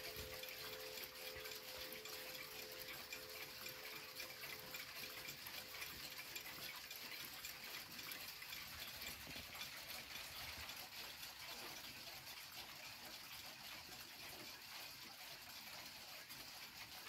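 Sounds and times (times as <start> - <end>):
clock ticking faintly: 0.0 - 17.0.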